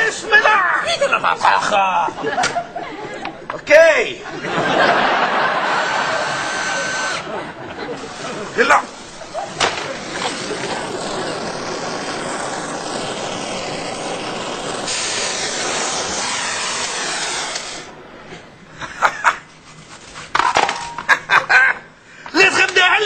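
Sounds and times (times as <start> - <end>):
gas torch flame hissing: 4.8 - 18.1.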